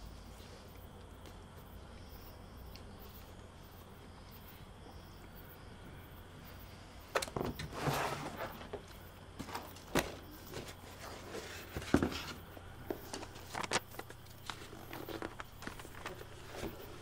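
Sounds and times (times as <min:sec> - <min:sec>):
faint room hum: 0:00.0 - 0:17.0
rustling: 0:07.1 - 0:17.0.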